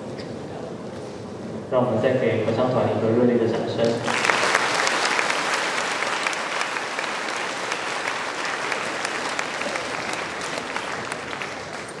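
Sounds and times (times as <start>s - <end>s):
audience applause: 4.0s - 12.0s.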